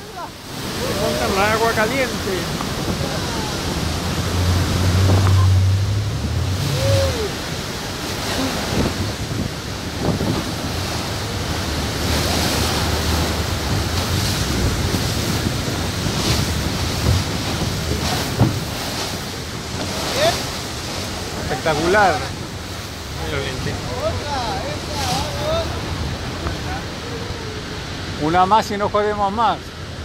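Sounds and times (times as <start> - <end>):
wind buffeting microphone: 0.0 - 28.2
water rushing and splashing: 0.0 - 30.0
low engine hum: 2.5 - 21.5.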